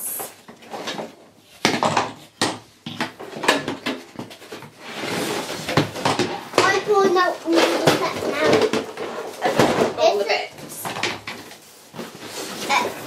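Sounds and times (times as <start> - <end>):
cardboard rustling: 3.2 - 13.0
plastic toy pieces clattering: 6.0 - 10.0.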